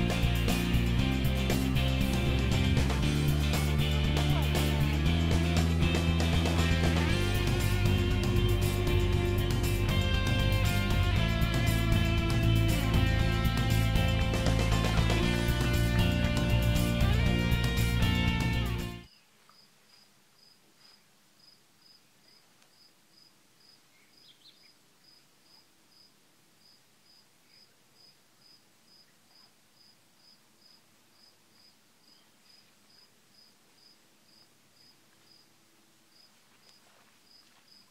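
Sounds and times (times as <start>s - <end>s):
faint cricket chirping: 19.1s - 37.9s.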